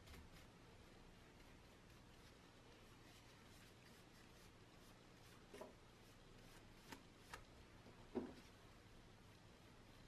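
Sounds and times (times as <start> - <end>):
paintbrush swishing on wood: 0.0 - 7.5.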